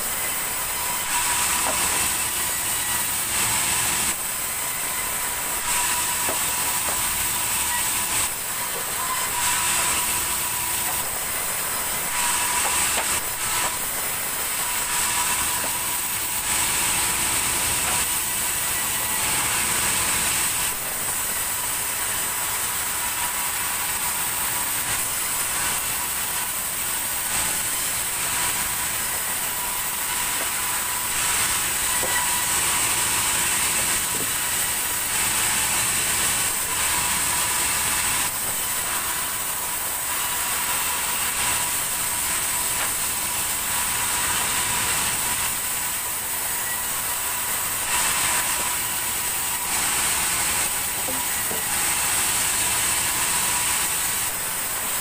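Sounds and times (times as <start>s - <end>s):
band saw cutting log: 0.0s - 55.0s
thin steady whine: 0.0s - 55.0s
blade hissing in wood: 24.5s - 55.0s.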